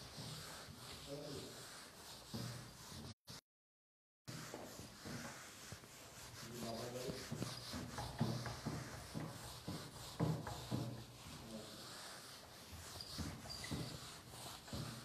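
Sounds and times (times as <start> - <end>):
duster rubbing whiteboard: 0.0 - 3.4, 4.3 - 15.0.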